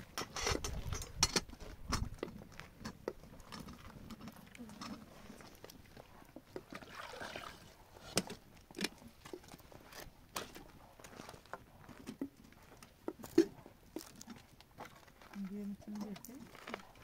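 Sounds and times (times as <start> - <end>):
water pouring into metal kettle: 6.6 - 7.7.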